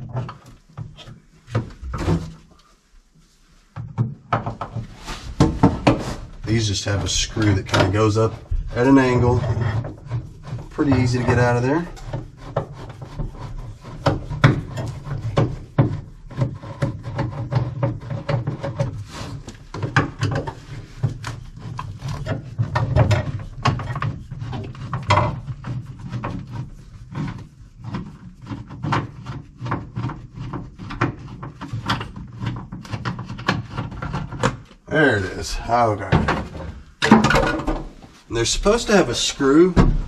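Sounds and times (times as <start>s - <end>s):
screwdriver clicks knocks and scraping: 27.9s - 34.8s.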